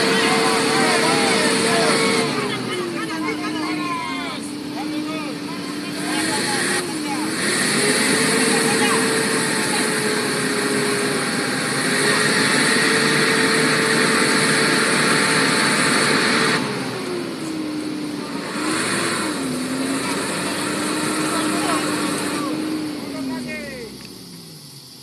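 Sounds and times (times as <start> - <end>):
car engine revving: 0.0 - 25.0.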